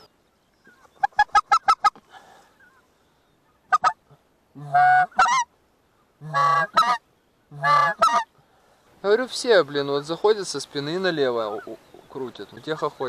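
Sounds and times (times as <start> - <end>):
goose honking: 3.6 - 4.0, 4.6 - 5.5, 6.2 - 8.3, 11.4 - 12.0.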